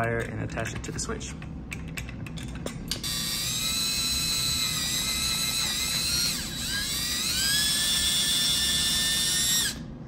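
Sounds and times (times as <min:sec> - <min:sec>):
cordless drill motor whining: 0:03.0 - 0:09.9.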